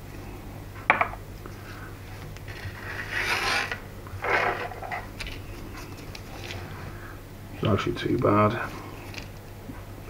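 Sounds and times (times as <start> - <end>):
gloved hands rubbing metal: 2.5 - 6.7.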